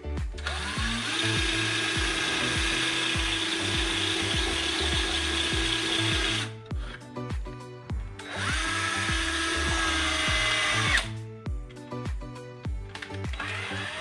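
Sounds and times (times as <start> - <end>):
power tool cutting hard plastic: 0.4 - 7.0, 8.2 - 11.2, 13.2 - 14.0.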